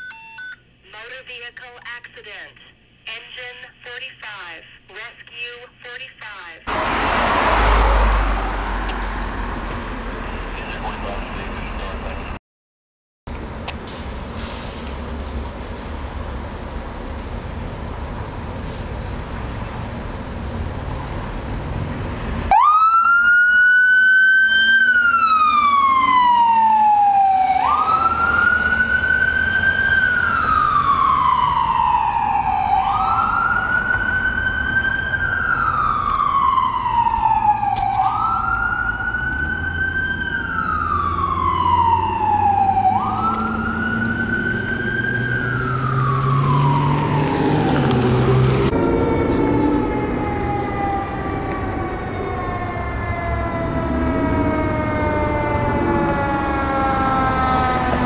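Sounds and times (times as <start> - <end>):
ambulance siren wailing: 6.7 - 12.2, 22.4 - 58.0
truck engine rumble: 6.7 - 12.4, 13.3 - 58.0.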